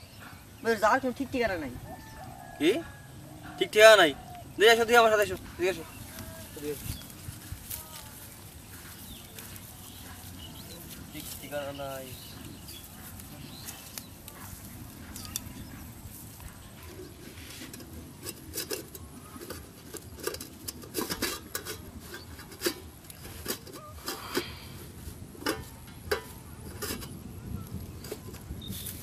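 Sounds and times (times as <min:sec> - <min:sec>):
steel plates clinking: 0:16.8 - 0:29.0.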